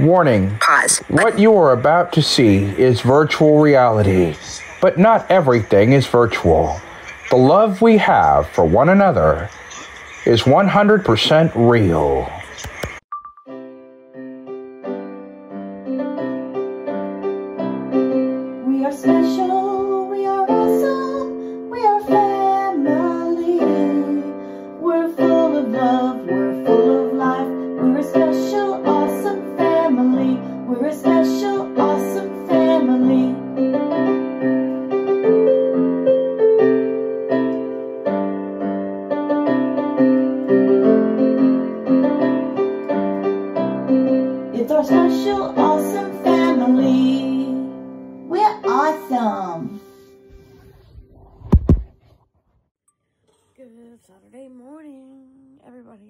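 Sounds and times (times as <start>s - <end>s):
keyboard-led song: 0.0s - 50.7s
person singing: 18.6s - 33.4s, 44.6s - 47.7s.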